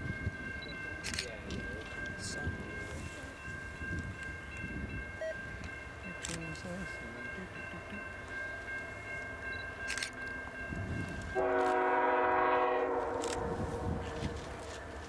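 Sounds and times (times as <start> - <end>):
locomotive air horn blast: 11.4 - 14.2.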